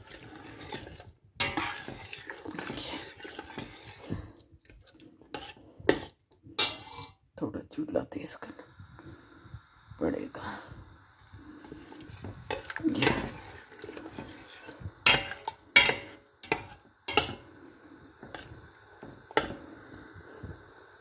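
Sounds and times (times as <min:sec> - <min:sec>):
metal spoon scraping a pot: 0:00.0 - 0:07.2, 0:11.6 - 0:17.5, 0:18.2 - 0:19.7.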